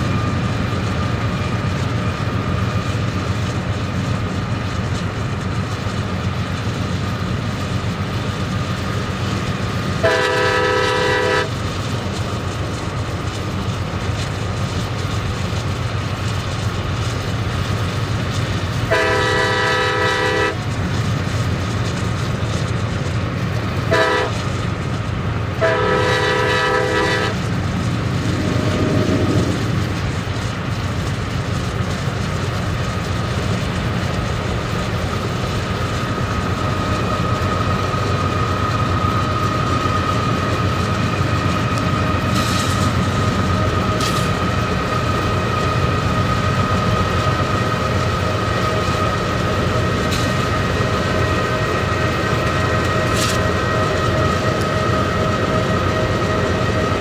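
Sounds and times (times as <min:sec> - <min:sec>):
train rumbling on track: 0:00.0 - 0:57.0
locomotive air horn blasts: 0:10.0 - 0:11.5, 0:18.9 - 0:20.6, 0:23.9 - 0:24.4, 0:25.6 - 0:27.4.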